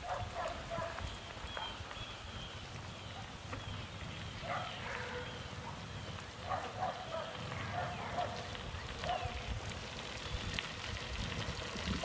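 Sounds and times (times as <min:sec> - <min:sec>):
dog barking: 0:00.0 - 0:01.0, 0:04.4 - 0:05.8, 0:06.4 - 0:08.4, 0:09.0 - 0:09.4
wind on microphone: 0:08.7 - 0:12.0.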